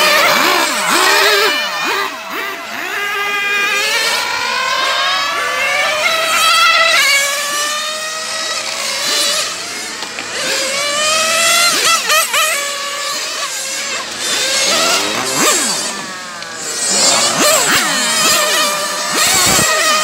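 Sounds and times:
electric rc cars whining: 0.0 - 20.0.

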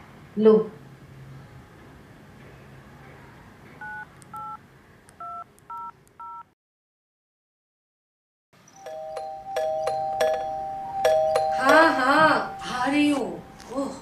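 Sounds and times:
phone keypad touch tones: 3.8 - 4.6, 5.2 - 6.5.

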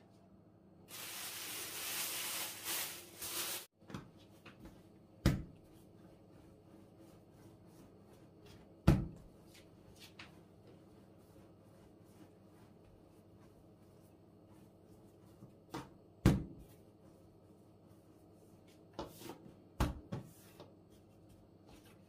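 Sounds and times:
plastic bag rustling: 0.9 - 3.7.

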